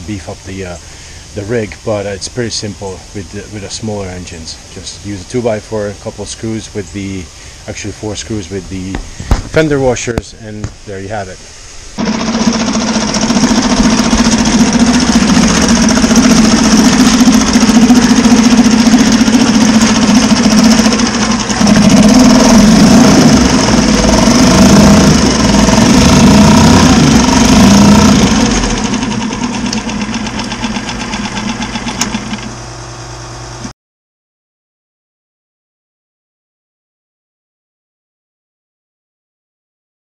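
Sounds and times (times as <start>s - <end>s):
propeller churning water: 0.0s - 32.8s
outboard motor running: 12.0s - 33.7s.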